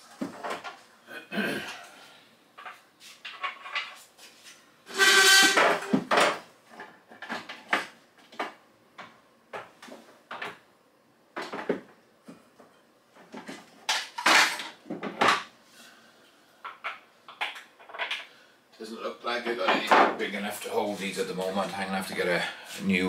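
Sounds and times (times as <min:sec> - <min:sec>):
objects clattering: 0:02.6 - 0:08.6, 0:11.4 - 0:15.5, 0:16.6 - 0:18.3.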